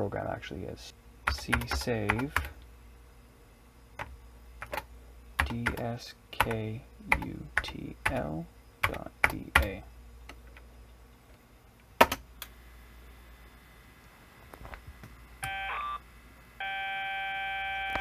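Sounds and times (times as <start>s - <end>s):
buzzy data tone: 15.4s - 18.0s.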